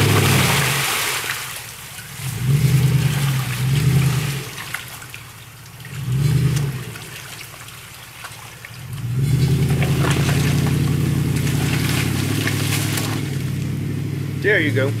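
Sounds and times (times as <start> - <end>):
engine revving: 0.0 - 1.0, 2.2 - 4.8, 5.8 - 7.4, 8.8 - 15.0
mud and water churning: 0.0 - 15.0.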